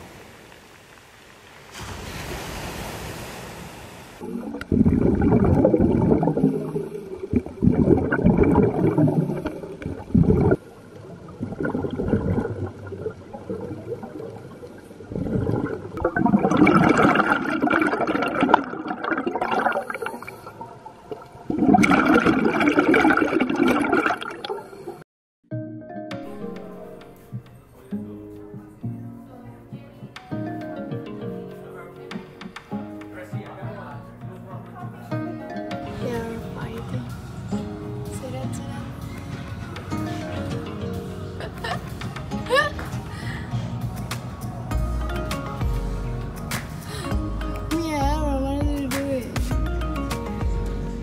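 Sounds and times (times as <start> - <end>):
water hiss: 0.0 - 10.5
underwater air bubbles gurgling: 4.2 - 25.0.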